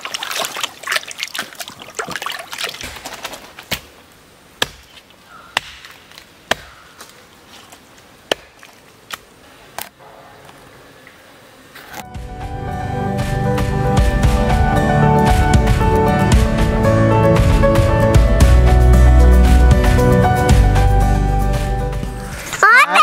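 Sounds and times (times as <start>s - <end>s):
water splashing in a tub: 0.0s - 4.0s.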